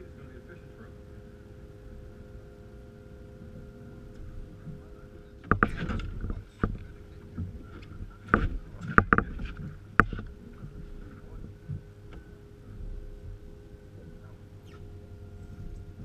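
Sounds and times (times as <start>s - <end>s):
faint steady hum: 0.0s - 16.0s
knocks on fiberglass boat: 5.4s - 13.4s.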